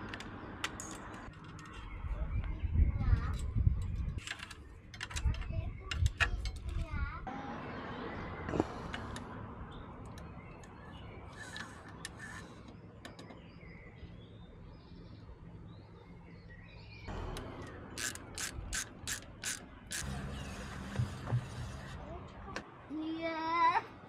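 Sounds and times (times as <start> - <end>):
bicycle parts clicking and ratcheting: 3.3 - 6.8, 17.3 - 20.2.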